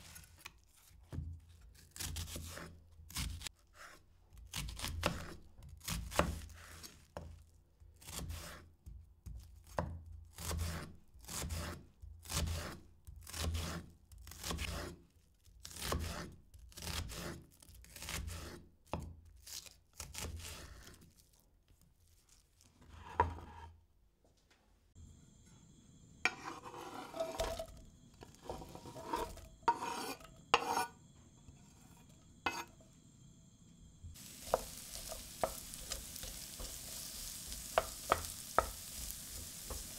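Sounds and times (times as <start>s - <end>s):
knife chopping on cutting board: 4.5s - 6.6s, 28.4s - 30.9s, 32.5s - 32.8s, 34.2s - 39.9s
kitchenware knocks and scrapes: 23.0s - 23.7s, 26.2s - 32.9s.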